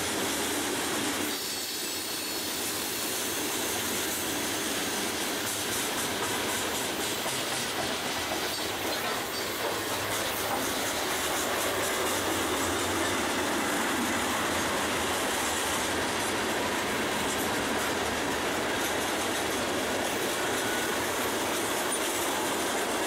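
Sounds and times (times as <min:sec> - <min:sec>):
freight train rolling past: 0:00.0 - 0:23.0.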